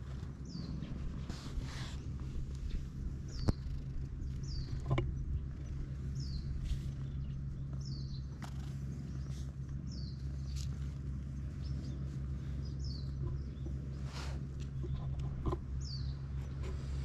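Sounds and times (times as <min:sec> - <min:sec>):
steady low hum: 0:00.0 - 0:17.0
faint clicks: 0:03.3 - 0:05.1.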